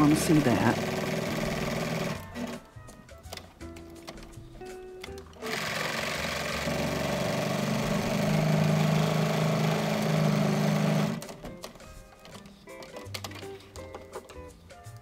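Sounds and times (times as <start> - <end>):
sewing machine stitching: 0.0 - 2.7, 5.1 - 14.3.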